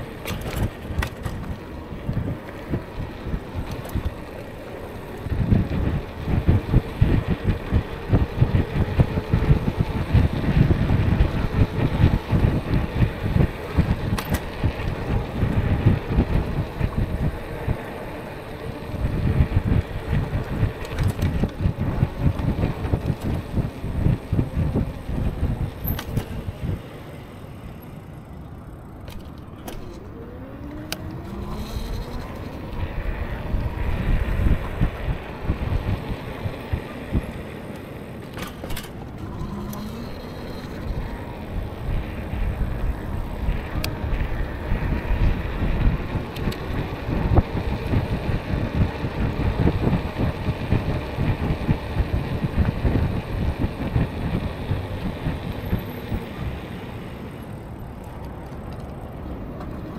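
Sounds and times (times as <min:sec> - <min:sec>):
wind rushing over microphone: 0:00.0 - 0:27.2, 0:29.8 - 0:59.9
road noise: 0:00.0 - 0:59.9
faint short rising whines: 0:29.8 - 0:37.4.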